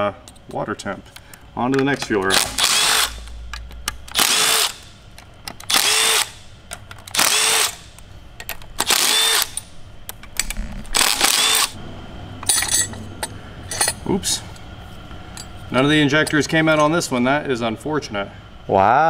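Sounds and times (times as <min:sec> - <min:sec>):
cordless power driver spinning bolts: 0:01.7 - 0:11.8.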